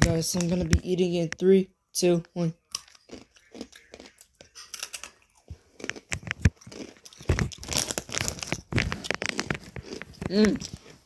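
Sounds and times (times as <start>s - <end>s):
chip bag crinkling: 5.8s - 11.0s.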